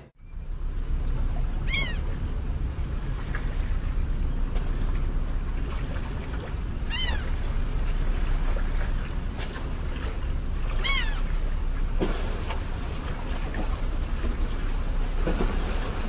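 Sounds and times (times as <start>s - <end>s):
steady low rumble: 0.0s - 16.0s
high animal cries: 1.6s - 2.1s, 6.8s - 7.4s, 10.8s - 11.3s.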